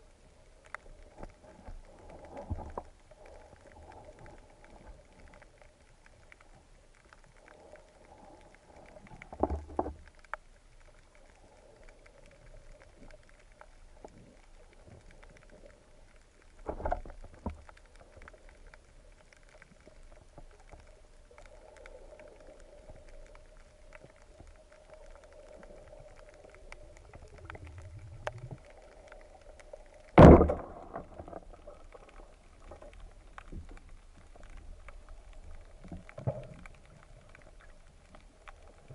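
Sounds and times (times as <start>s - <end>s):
speargun firing underwater: 30.2s - 30.8s.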